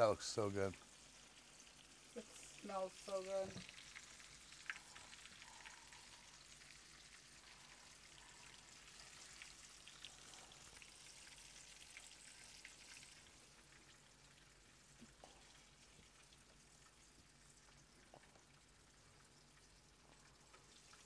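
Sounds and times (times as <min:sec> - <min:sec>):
oil sizzling with crackles: 0:00.0 - 0:21.0.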